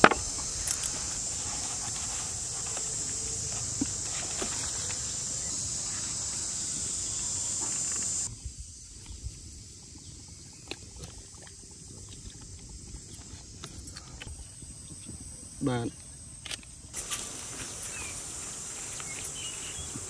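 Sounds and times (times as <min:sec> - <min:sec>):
high-pitched hiss: 0:00.0 - 0:09.8, 0:16.8 - 0:20.0.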